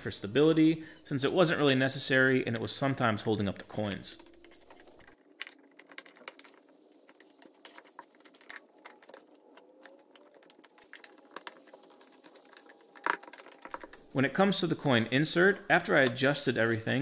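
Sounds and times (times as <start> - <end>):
small wooden parts clicking: 3.8 - 14.2.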